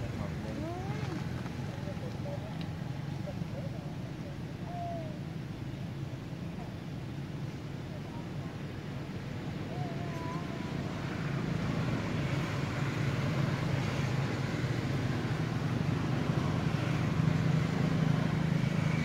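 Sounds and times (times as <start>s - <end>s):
vehicle engine humming: 0.0s - 4.6s.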